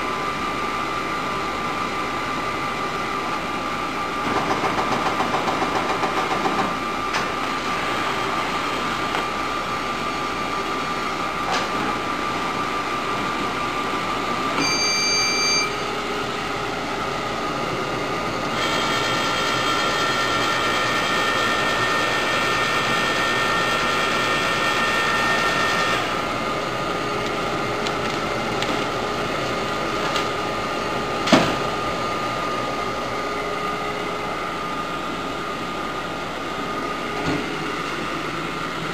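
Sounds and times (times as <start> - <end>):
printer mechanical hum and whine: 0.0 - 38.9
high multi-tone whine: 14.5 - 31.2
short beep: 14.6 - 15.9.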